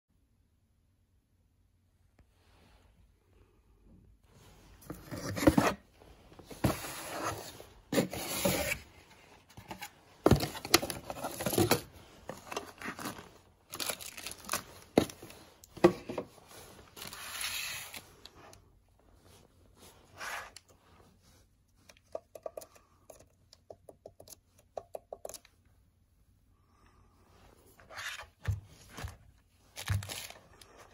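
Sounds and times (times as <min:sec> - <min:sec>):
plastic and cardboard packaging rustling: 0:04.4 - 0:21.2, 0:27.7 - 0:30.9.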